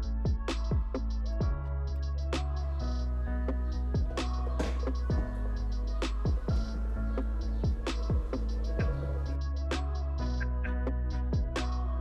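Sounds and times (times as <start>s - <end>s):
deep steady bass: 0.0s - 12.0s
electronic music: 0.0s - 12.0s
pitch-dropping bass drum hit: 0.2s - 1.6s, 3.9s - 9.0s, 11.4s - 11.6s.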